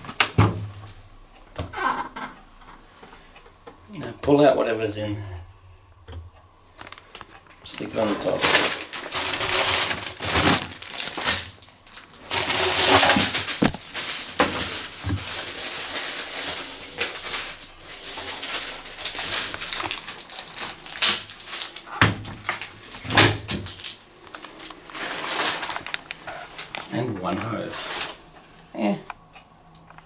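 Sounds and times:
plastic packaging crinkling: 6.8 - 28.3.

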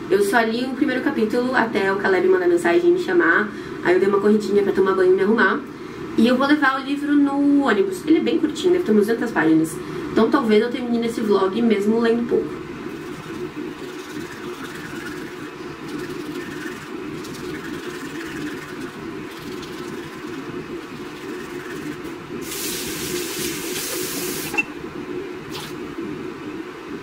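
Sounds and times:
steady low hum: 0.0 - 27.0
toothbrush scrubbing teeth: 12.9 - 24.6
tap running with a hiss: 12.9 - 24.7.

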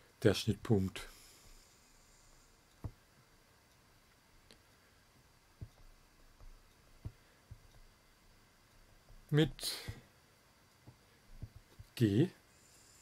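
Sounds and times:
stylus tapping on tablet: 2.8 - 3.0, 5.6 - 7.9, 10.8 - 12.0.

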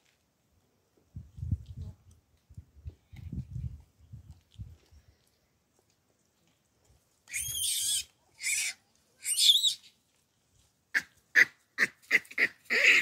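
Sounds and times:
baboons calling: 7.3 - 9.8, 11.0 - 13.0.

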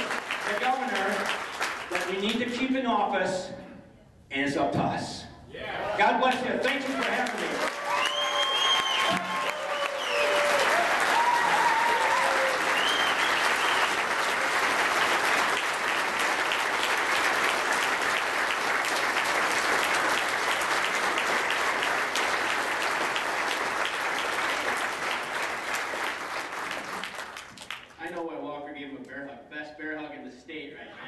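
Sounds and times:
audience clapping: 0.0 - 2.6, 6.2 - 28.3.

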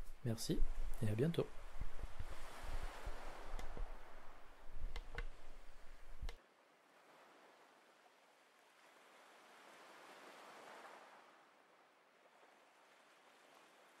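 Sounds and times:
faint hiss: 0.0 - 6.4.

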